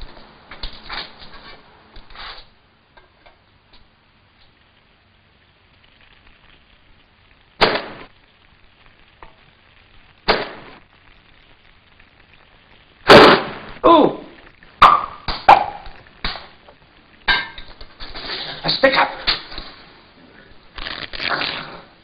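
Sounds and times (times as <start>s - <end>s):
metal pans clattering: 17.3s - 18.5s.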